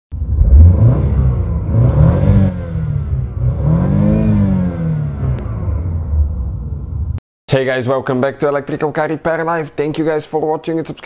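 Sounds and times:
car engine revving: 0.2 - 7.2.

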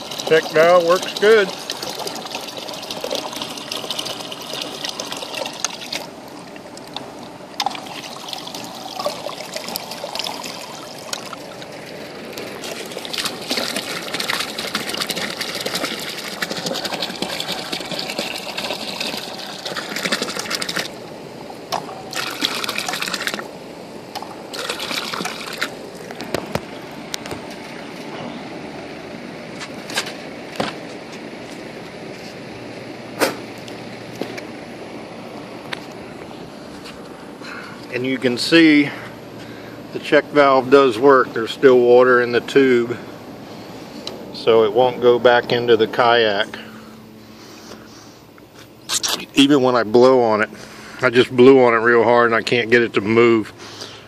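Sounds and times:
water pouring into pool: 0.0 - 6.2, 7.6 - 21.0, 22.1 - 23.5, 24.4 - 26.0.

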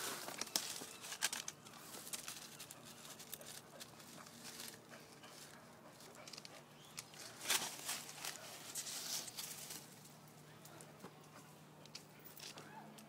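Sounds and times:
puppy claws scratching bark: 0.2 - 10.0.

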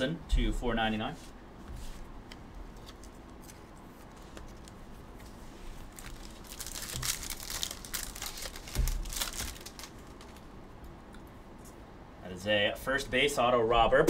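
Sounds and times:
foil wrappers crinkling and tearing: 5.7 - 10.5.

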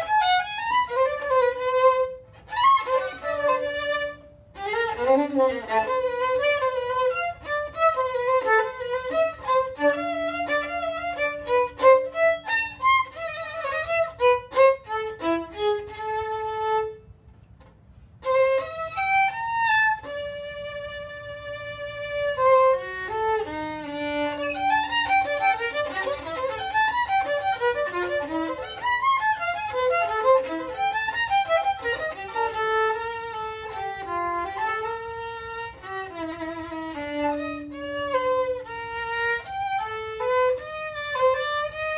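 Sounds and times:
solo violin playing quick runs: 18.2 - 41.9.

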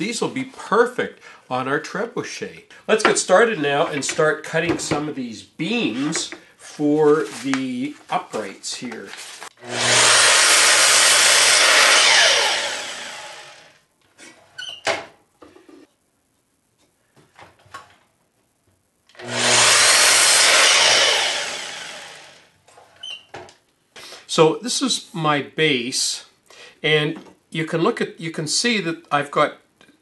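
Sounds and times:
miter saw cutting wood: 9.6 - 13.7, 19.2 - 22.5.

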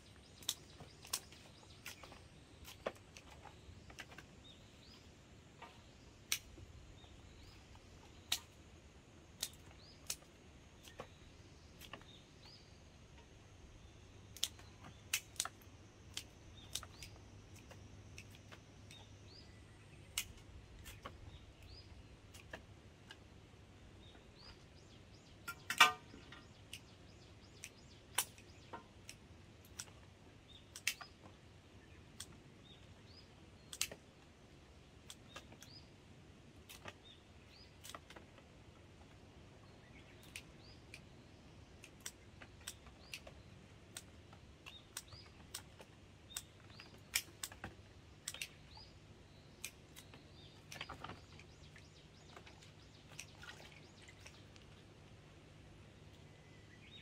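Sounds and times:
garden shears snipping stems: 33.6 - 34.0, 41.8 - 48.8.

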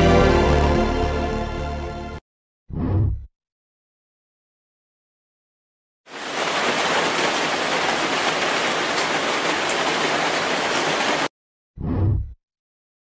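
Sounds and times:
heavy rain: 6.1 - 11.3.

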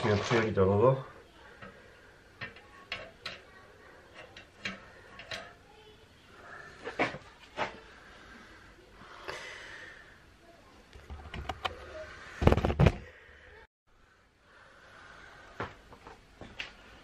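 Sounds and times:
knocks and loud thuds: 12.4 - 13.1.

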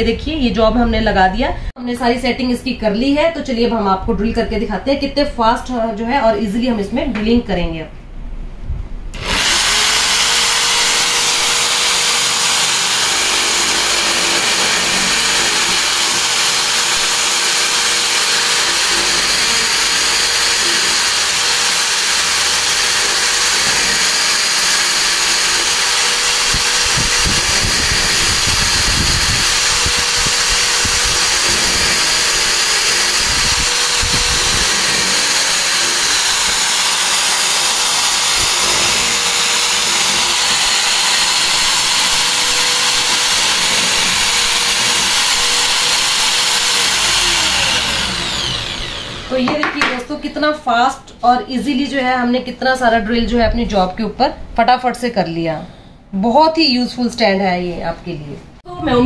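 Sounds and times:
low rumbling of drilling: 9.1 - 49.6
electric drill motor whine: 9.2 - 49.5.

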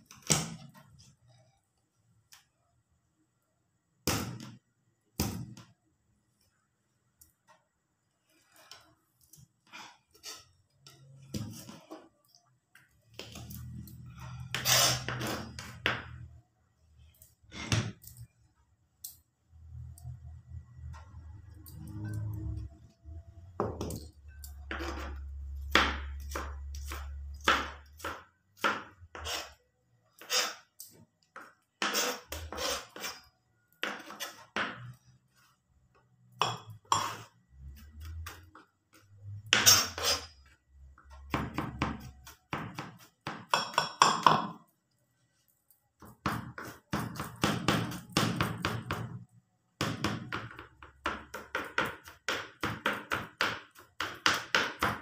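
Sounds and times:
knife chopping on plastic board: 24.7 - 29.3, 41.3 - 44.6, 46.0 - 49.2, 49.8 - 55.0.

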